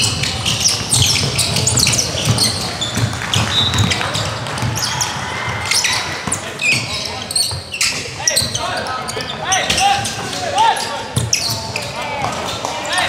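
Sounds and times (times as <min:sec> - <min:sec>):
basketball bouncing on hardwood: 0:00.0 - 0:04.9
sneakers squeaking on floor: 0:00.0 - 0:13.0.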